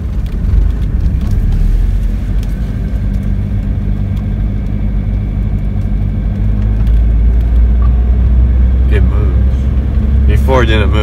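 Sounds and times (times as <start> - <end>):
car engine running inside cabin: 0.0 - 11.0.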